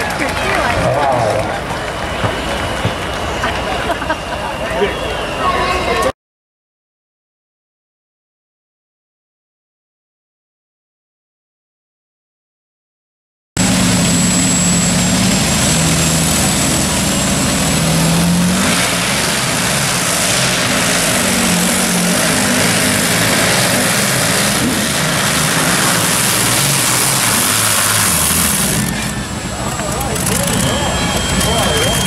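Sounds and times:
tractor engine at high revs: 13.6s - 32.0s.

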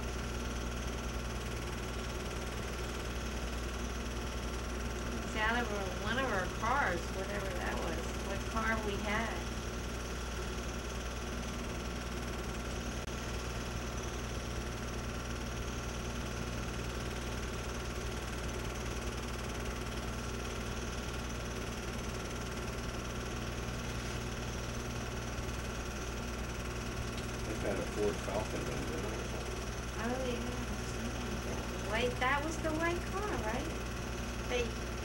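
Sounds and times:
film projector motor humming: 0.0s - 35.0s.

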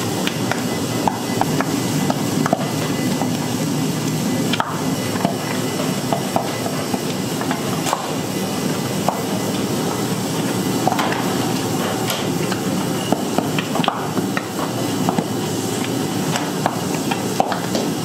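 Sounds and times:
steady background noise: 0.0s - 18.0s.

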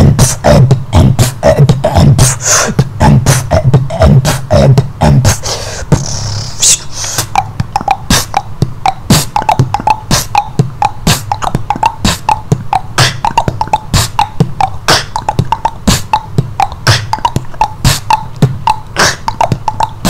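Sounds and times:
man beatboxing: 0.0s - 20.0s.

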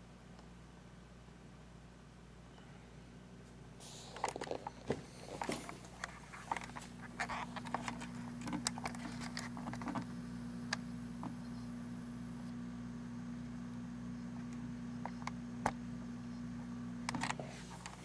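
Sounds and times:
low hum: 3.9s - 18.0s
handling clicks and rustles: 4.1s - 10.1s.

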